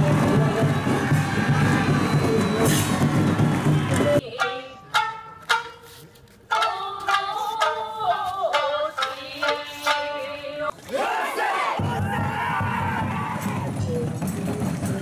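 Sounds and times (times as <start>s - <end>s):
crowd shouting: 0.0s - 4.2s, 10.8s - 13.8s
plucked shamisen notes: 4.3s - 10.5s.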